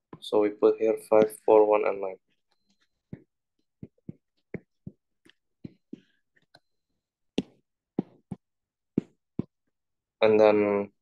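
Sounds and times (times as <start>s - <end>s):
stylus tapping on glass screen: 2.5s - 6.7s, 7.3s - 9.7s.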